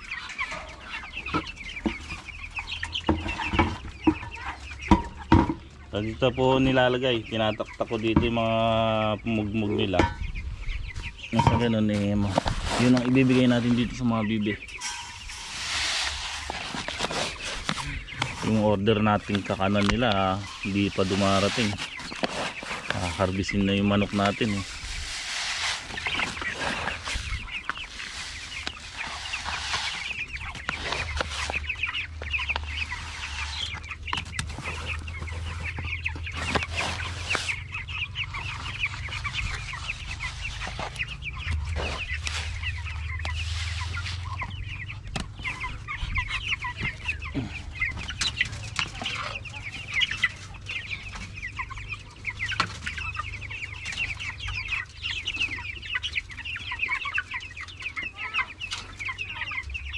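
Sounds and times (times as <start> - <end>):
chickens clucking: 0.0 - 59.9.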